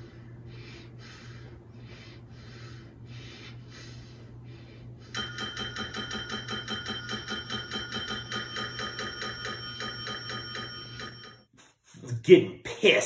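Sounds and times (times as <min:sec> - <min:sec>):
low steady hum: 0:00.0 - 0:11.3
desk service bell dinging: 0:05.2 - 0:11.5.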